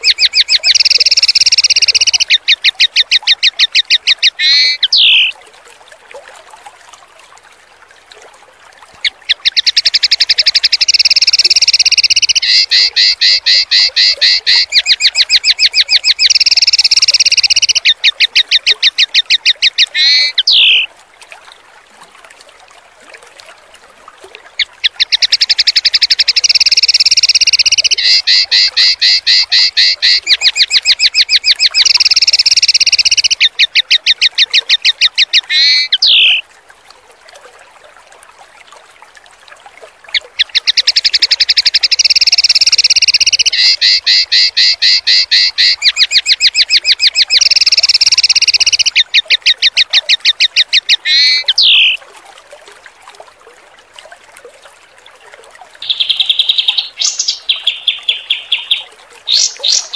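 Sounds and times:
bird song of fast harsh notes: 0.0 - 5.3, 9.3 - 20.9, 24.8 - 34.1, 34.8 - 36.4, 40.4 - 49.6, 55.8 - 59.9
faint running water: 0.0 - 59.9.

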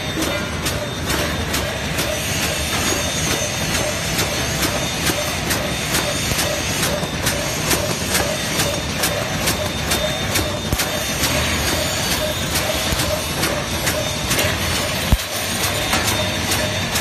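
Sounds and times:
machine clacking: 0.0 - 17.0.

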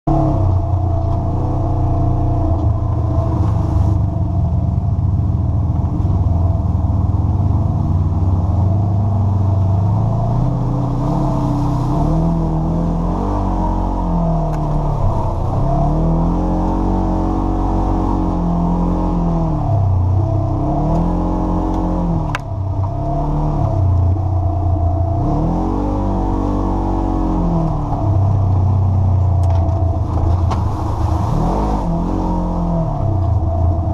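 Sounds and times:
drivetrain and tyre rumble: 0.0 - 33.9
off-road vehicle engine revving: 0.0 - 33.9.

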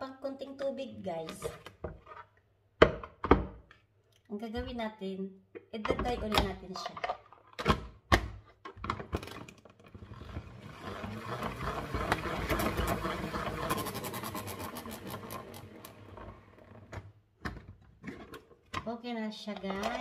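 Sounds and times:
salad spinner whirring rattle: 9.9 - 16.8.

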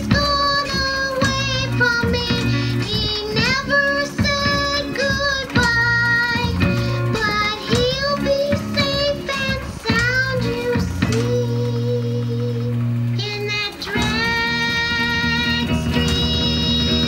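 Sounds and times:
band with steady bass: 0.0 - 17.0
high-pitched voice singing: 0.0 - 17.0.

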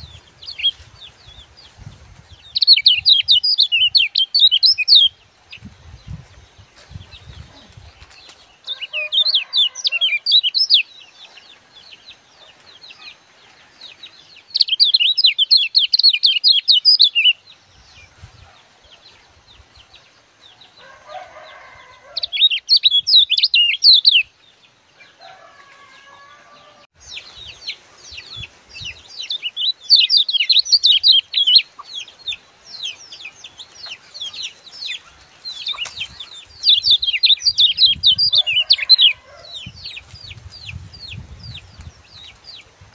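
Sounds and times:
bird chattering song: 2.4 - 5.7, 7.0 - 13.2, 14.4 - 18.0, 22.2 - 24.3, 27.1 - 42.4.

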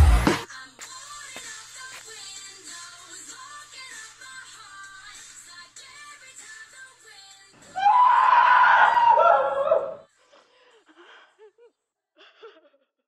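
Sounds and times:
person screaming: 7.7 - 10.0.

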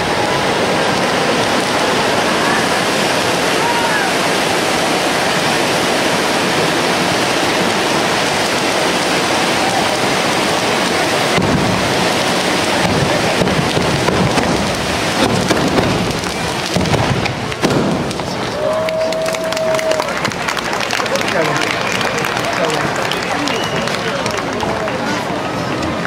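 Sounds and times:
firework fountains hissing: 0.0 - 26.0
sharp cracks and pops: 8.2 - 18.6.

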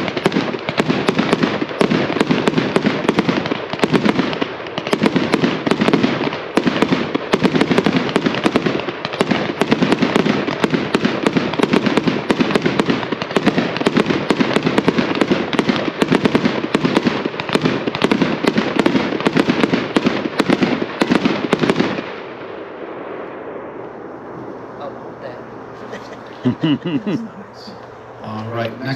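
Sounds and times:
fireworks popping and crackling: 0.0 - 28.2.

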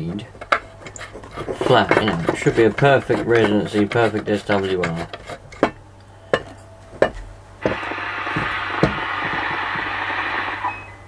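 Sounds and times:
scraping hiss: 7.6 - 10.7.

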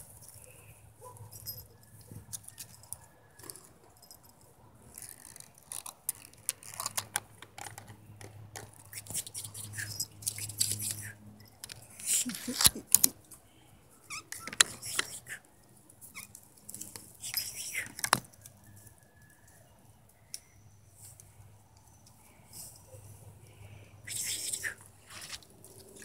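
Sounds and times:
twigs and leaves rustling: 25.0 - 26.0.

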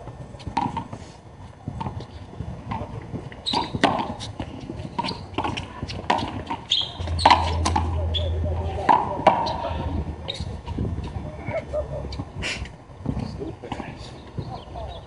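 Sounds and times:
low steady hum: 4.0 - 13.4.

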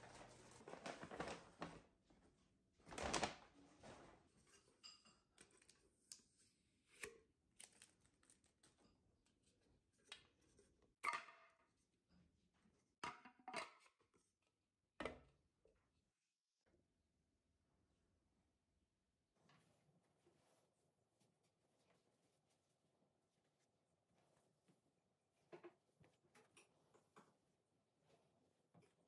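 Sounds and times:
paper bag rustling: 0.0 - 1.9, 2.8 - 4.2
faint handling noises: 0.0 - 2.3.

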